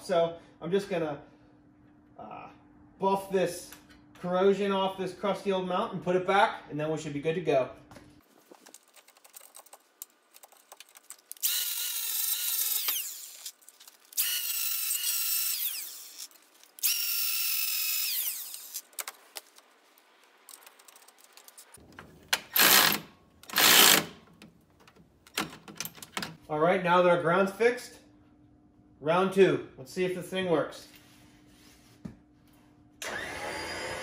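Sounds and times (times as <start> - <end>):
cordless ratchet running: 10.3 - 18.9, 22.6 - 24.2
angle grinder whining: 11.3 - 18.9, 22.4 - 24.2, 33.0 - 34.0.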